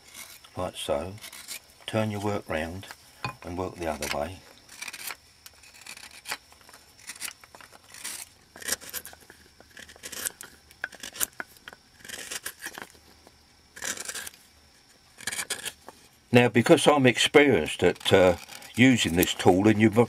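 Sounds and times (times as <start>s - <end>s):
gouge cutting wood: 1.2s - 1.6s, 15.2s - 15.8s.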